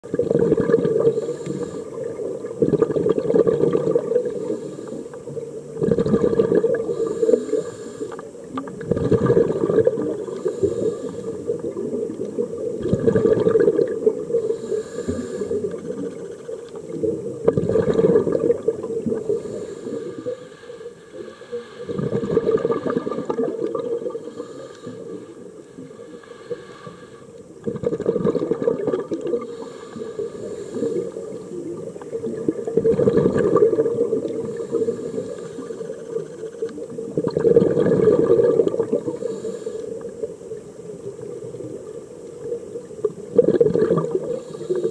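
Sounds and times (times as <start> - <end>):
exhaled bubbles underwater: 0.0 - 44.9
regulator inhalations: 0.9 - 2.3, 4.2 - 5.4, 6.6 - 8.3, 10.2 - 11.7, 14.3 - 16.3, 19.2 - 27.5, 29.4 - 31.8, 34.3 - 36.4, 39.0 - 40.3, 44.2 - 44.9.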